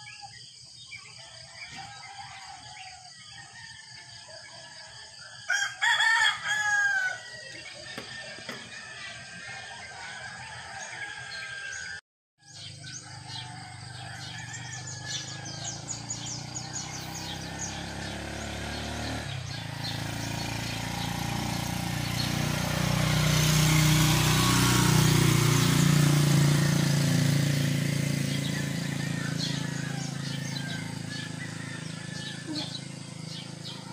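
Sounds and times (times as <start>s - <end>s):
small birds chirping: 12.5s - 33.9s.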